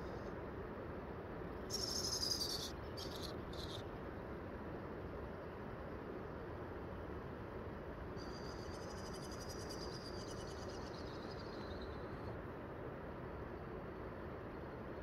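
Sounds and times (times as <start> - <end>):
steady background noise: 0.0 - 15.0.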